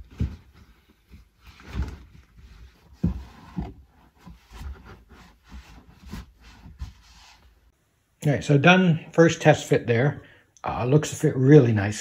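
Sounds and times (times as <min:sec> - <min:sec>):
dull thumps: 0:00.0 - 0:07.1
carpet rubbing and rustling: 0:00.0 - 0:07.8.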